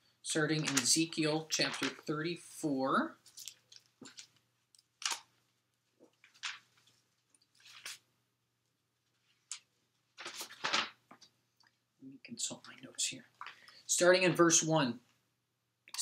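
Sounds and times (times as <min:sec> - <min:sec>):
faint electrical hum: 0:00.0 - 0:16.0
paper notes rustling: 0:00.3 - 0:02.4, 0:06.0 - 0:08.0, 0:10.2 - 0:11.2.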